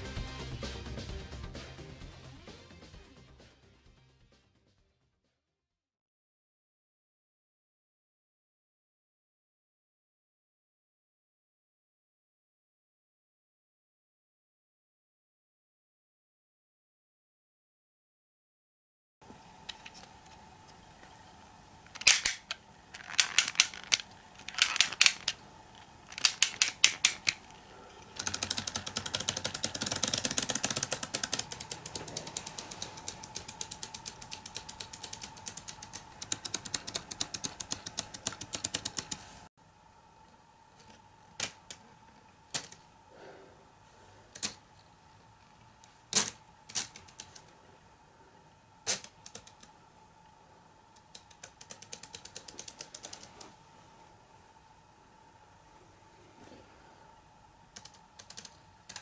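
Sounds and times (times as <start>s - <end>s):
mechanism sharp ticks: 21.8s - 39.2s, 48.8s - 49.8s
ratchet clicking: 21.9s - 25.4s, 26.1s - 27.4s, 28.2s - 39.2s
gear train fast clicking: 22.0s - 25.4s, 26.1s - 27.5s, 28.1s - 39.4s.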